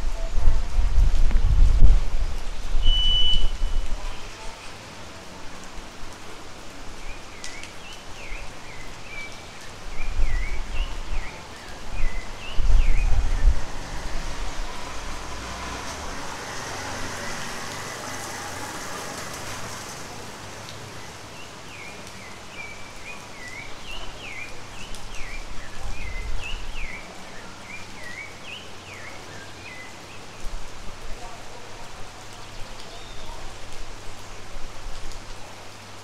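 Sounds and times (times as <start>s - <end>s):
steady rain falling: 0.0s - 36.0s
bird calling falling notes: 2.8s - 3.8s.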